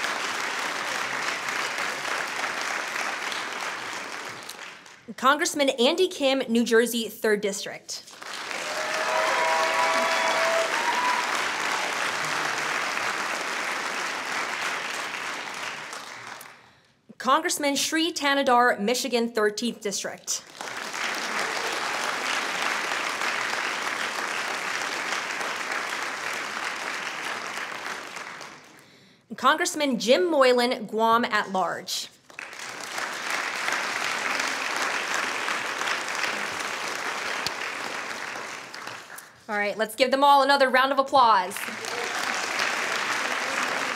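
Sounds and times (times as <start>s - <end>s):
audience applauding: 0.0s - 5.1s, 8.1s - 16.6s, 20.5s - 28.9s, 32.3s - 39.5s, 41.6s - 43.9s
person cheering: 8.6s - 11.9s, 41.7s - 42.5s.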